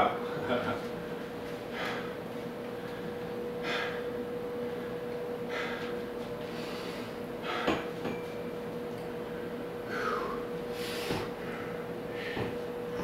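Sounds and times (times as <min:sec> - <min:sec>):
steady hum: 0:00.0 - 0:13.0
man breathing hard through nose: 0:01.6 - 0:02.2, 0:02.8 - 0:07.9, 0:09.8 - 0:12.6.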